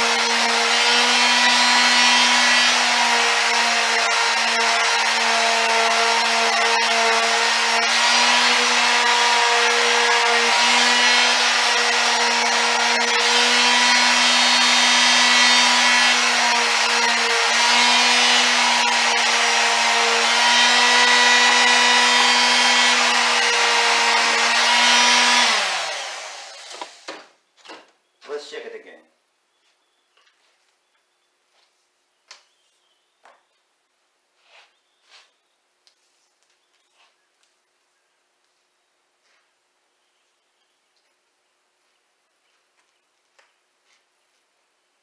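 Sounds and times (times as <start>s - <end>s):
electric sander running: 0.0s - 27.2s.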